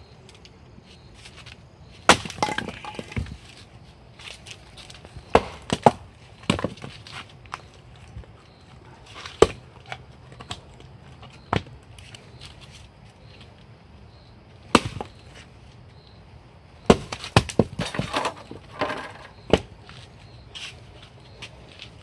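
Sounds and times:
axe chopping a log: 2.1 - 3.4, 5.3 - 6.9, 9.3 - 9.6, 14.7 - 15.2, 16.9 - 18.6, 19.5 - 19.7.

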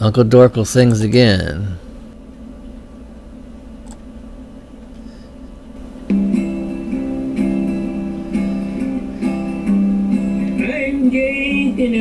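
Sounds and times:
low room hum: 0.0 - 12.0
strummed guitar chords: 6.0 - 12.0.

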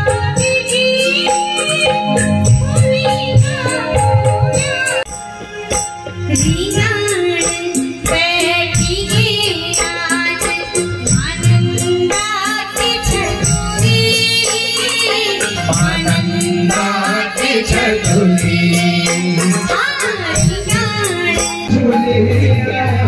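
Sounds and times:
drums and percussion: 0.0 - 23.0
person singing: 12.9 - 23.0.

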